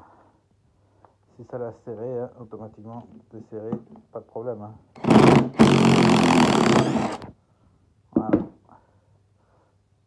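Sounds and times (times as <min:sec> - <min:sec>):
impact driver hammering: 0:05.0 - 0:07.2.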